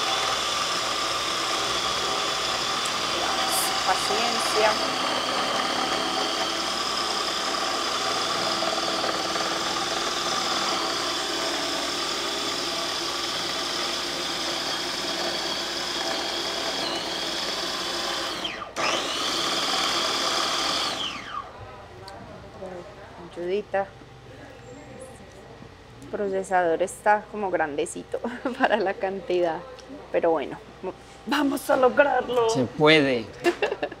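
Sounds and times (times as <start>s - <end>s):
food processor running: 0.0s - 21.5s.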